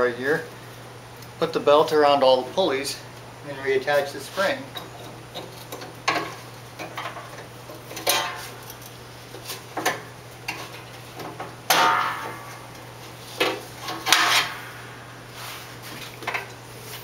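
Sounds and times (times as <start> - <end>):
steady low hum: 0.0 - 17.0
metal tools clanking on steel: 7.8 - 9.0.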